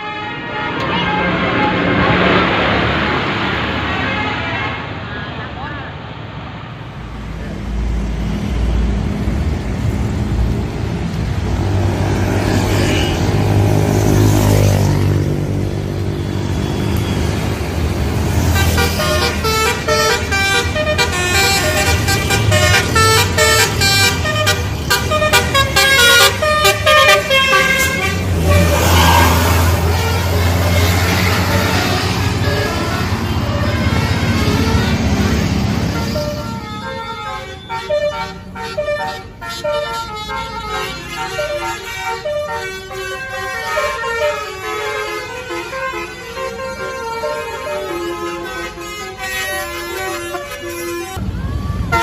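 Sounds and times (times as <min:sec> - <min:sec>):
bus engine running: 0:00.0 - 0:52.0
musical horn tune: 0:18.5 - 0:51.2.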